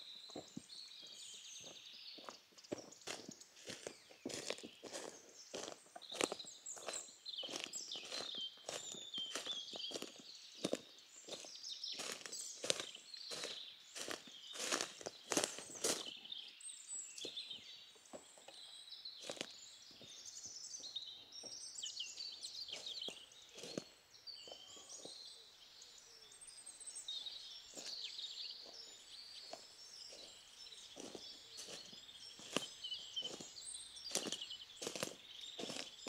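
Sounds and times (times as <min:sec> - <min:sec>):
birds chirping and singing: 0:00.0 - 0:36.0
footsteps in leaf litter: 0:02.8 - 0:16.2, 0:19.2 - 0:19.5, 0:29.5 - 0:36.0.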